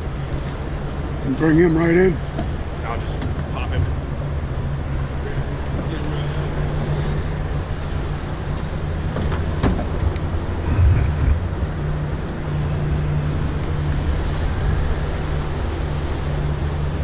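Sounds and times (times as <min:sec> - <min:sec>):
boat motor hum: 0:00.0 - 0:17.0
wind noise: 0:10.1 - 0:12.0.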